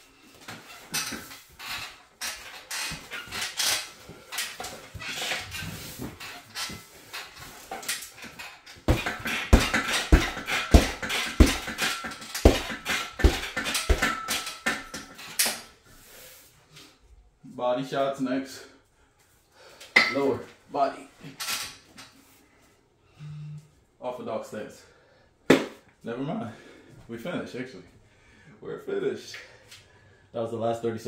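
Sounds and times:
punches on heavy bag: 8.9s - 15.0s.

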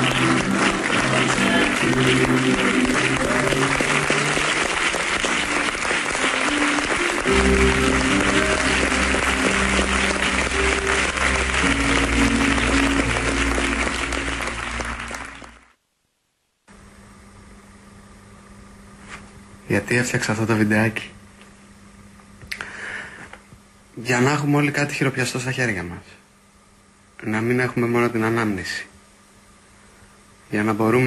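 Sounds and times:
music with held chords: 0.0s - 15.6s
applause: 0.0s - 15.8s
low room hum: 0.0s - 31.0s.

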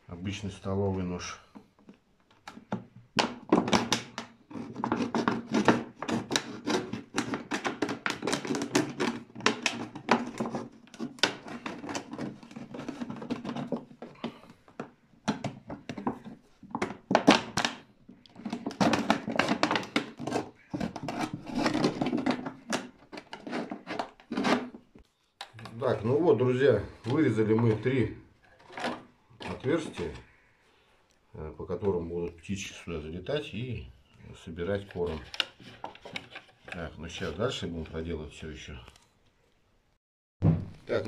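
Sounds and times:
knife cutting plastic bottle: 2.4s - 24.8s.

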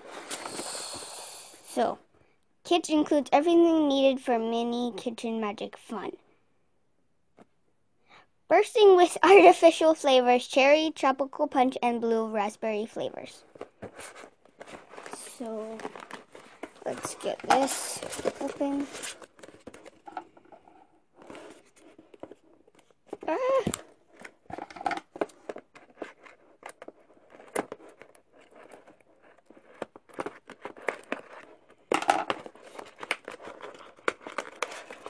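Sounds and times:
cardboard rustling and crinkling: 13.4s - 35.0s.

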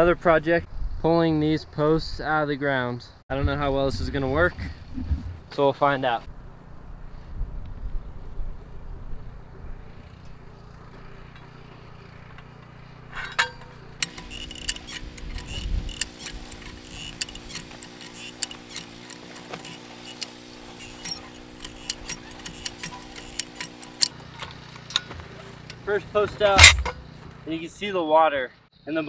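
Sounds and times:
farm jack ratcheting clicks: 11.3s - 25.8s.

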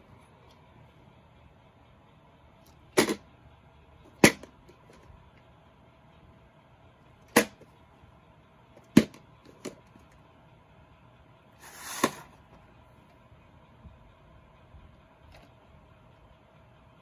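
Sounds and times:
cassette sliding out of sleeve: 11.6s - 12.4s.

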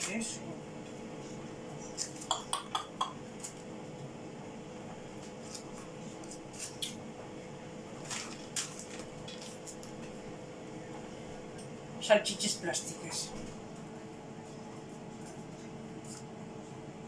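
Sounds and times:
steady low hum: 0.0s - 17.0s
plastic bag crinkling: 8.0s - 10.1s.

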